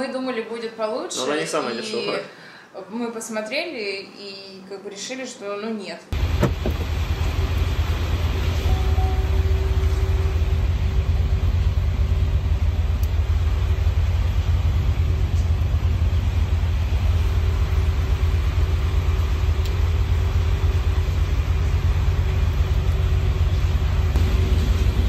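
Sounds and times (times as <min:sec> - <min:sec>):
moving car rumble: 0:06.2 - 0:25.0.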